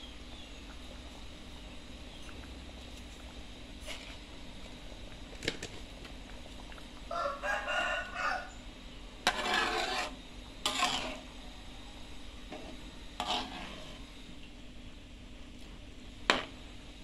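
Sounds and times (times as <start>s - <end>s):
metal ladle scraping a wok: 3.8s - 4.2s, 9.2s - 11.3s, 12.5s - 14.2s.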